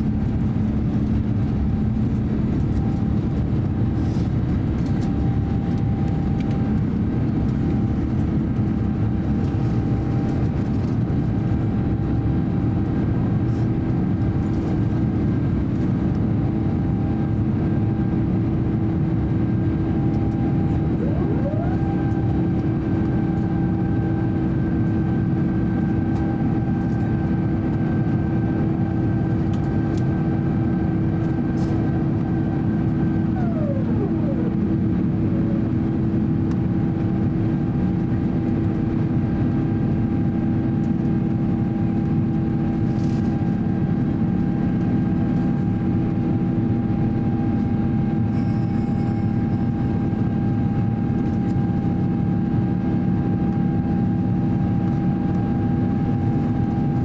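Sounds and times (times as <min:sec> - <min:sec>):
airflow over fuselage: 0:00.0 - 0:46.7
low steady drone: 0:00.0 - 0:57.0
jet engines roaring: 0:17.4 - 0:40.3
higher engine tone sliding: 0:20.7 - 0:22.4, 0:33.0 - 0:35.6.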